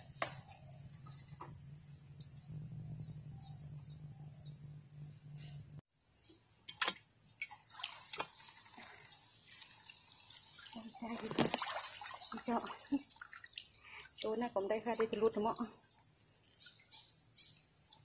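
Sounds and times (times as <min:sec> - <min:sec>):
water dripping and splashing off net: 0:07.4 - 0:17.1.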